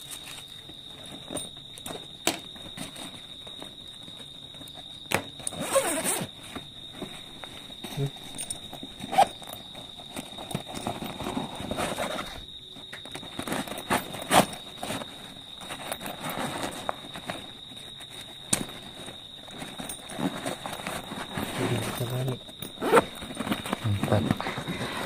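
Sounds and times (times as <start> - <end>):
fabric rustling and scraping: 0.0 - 25.0.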